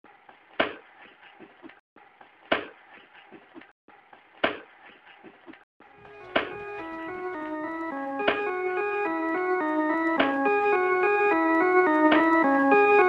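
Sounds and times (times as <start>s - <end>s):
organ music: 6.0s - 13.0s.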